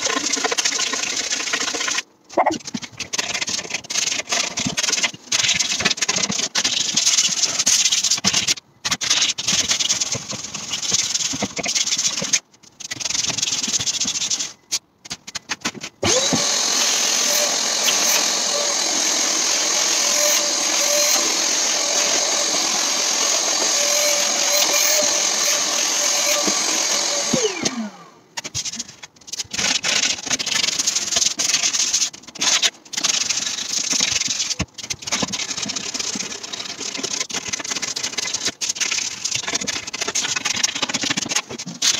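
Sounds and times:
scratchy rubbing on wood: 0.0 - 14.6, 15.4 - 27.4
workshop vacuum motor whine: 16.0 - 28.2.

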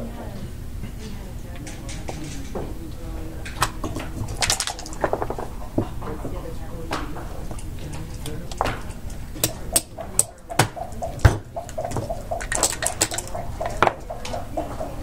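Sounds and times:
plastic checkers clacking on board: 3.4 - 5.9, 6.9 - 15.0
heavier knock: 10.4 - 12.5.

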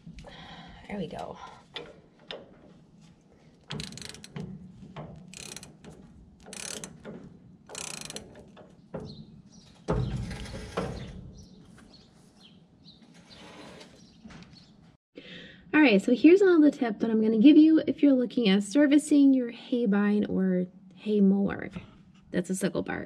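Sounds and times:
ratchet wrench clicking: 3.7 - 4.4, 5.3 - 7.1, 7.7 - 8.5
heavy metallic clunk: 3.7 - 11.5.

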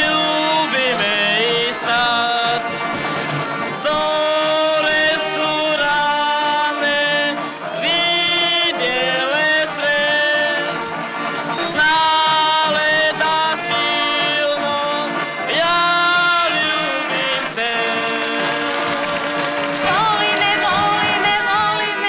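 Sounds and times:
person singing high melody: 19.8 - 22.0.

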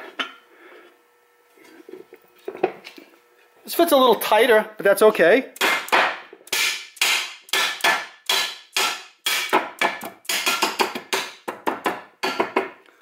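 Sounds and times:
mallet tapping metal plate: 5.6 - 12.6.

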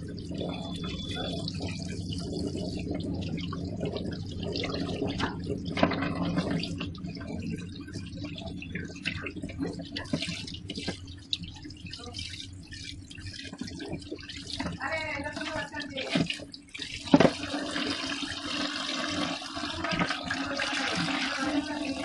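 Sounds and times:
steady low hum: 0.0 - 16.7
dripping splashes: 0.0 - 22.0.

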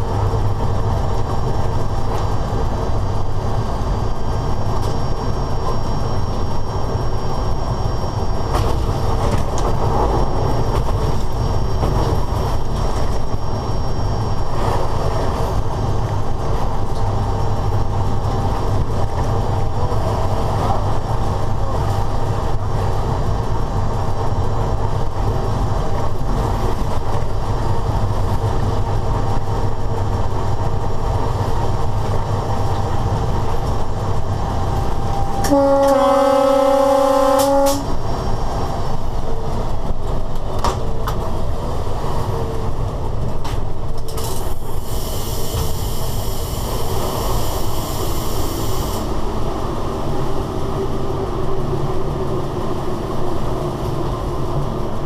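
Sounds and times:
train wheels rumbling: 0.0 - 55.0
train horn blast: 35.2 - 38.0.

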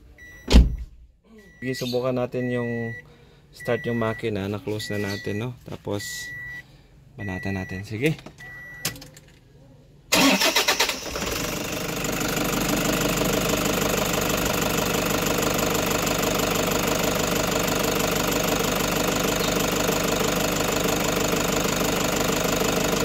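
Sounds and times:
starter motor cranking: 10.1 - 17.0
diesel engine idling: 10.1 - 23.0.

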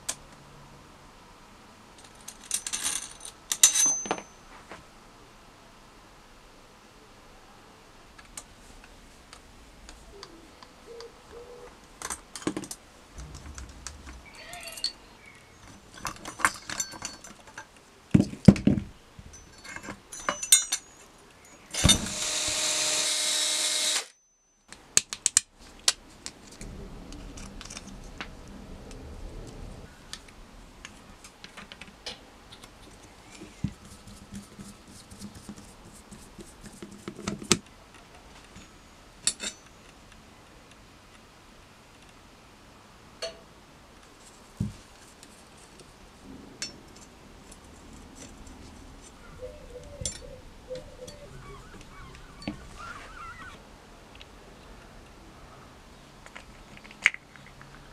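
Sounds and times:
metal parts clicking and clinking: 2.0 - 4.4, 12.0 - 22.1, 38.5 - 39.9
loud steady noise: 13.1 - 16.0.

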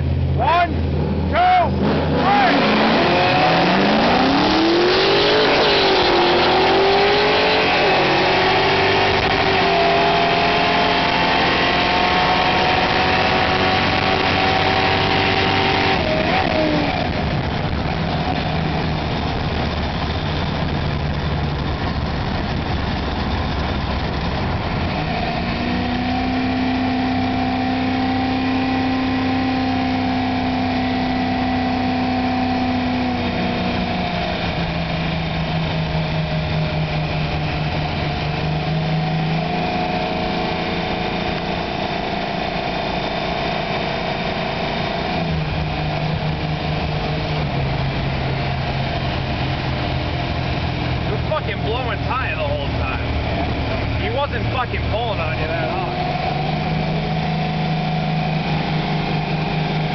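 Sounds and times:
car engine accelerating: 0.0 - 59.9.

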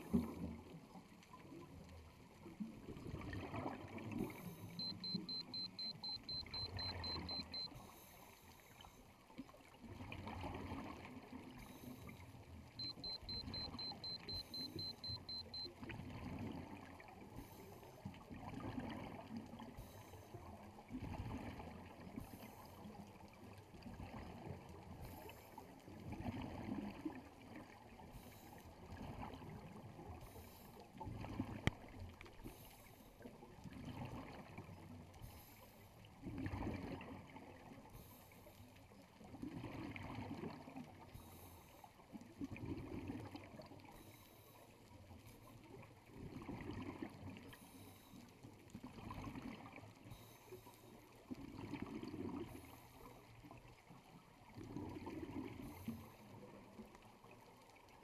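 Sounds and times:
faint hiss of water: 0.0 - 58.0.

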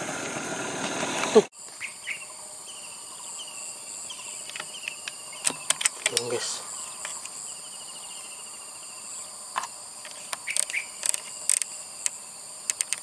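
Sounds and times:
high-pitched insect chorus: 1.0 - 13.0
sharp clicks: 4.4 - 6.4, 9.5 - 13.0.

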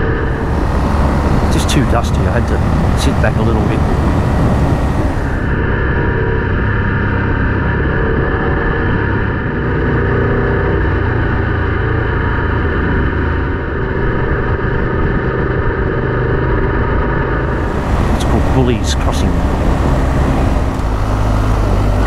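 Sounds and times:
motorcycle engine running: 0.0 - 5.6, 17.4 - 22.0
tyres on gravel road: 0.0 - 5.6, 17.4 - 22.0.

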